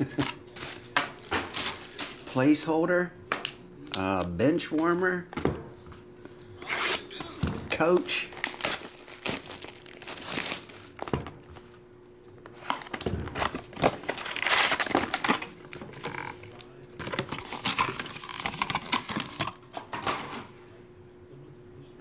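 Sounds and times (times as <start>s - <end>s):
plastic shrink-wrap tearing: 0.0s - 2.3s, 6.6s - 11.1s, 12.5s - 19.6s
cardboard box and foil packs rustling: 0.0s - 2.6s, 6.6s - 11.8s, 12.4s - 20.3s.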